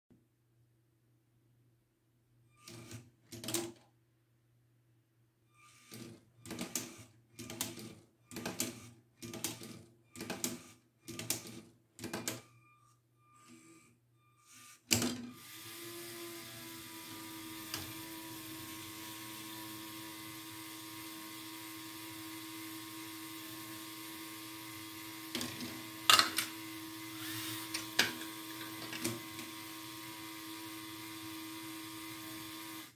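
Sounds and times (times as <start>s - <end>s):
short mechanical bursts: 5.5s - 11.5s, 13.3s - 16.5s, 27.0s - 28.5s
motor whine: 13.3s - 32.9s.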